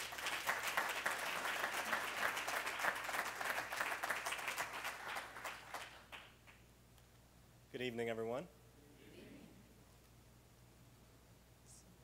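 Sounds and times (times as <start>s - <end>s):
audience applause: 0.0s - 6.4s.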